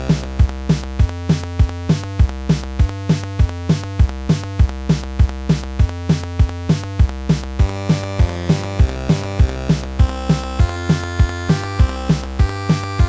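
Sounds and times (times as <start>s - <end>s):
fast drum-machine beat: 0.0s - 13.0s
synthesizer tune: 7.6s - 13.0s.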